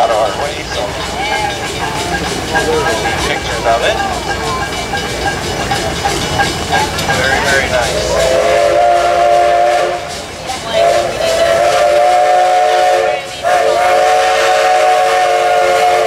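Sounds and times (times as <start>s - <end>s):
steam whistle blasts: 7.5s - 16.0s.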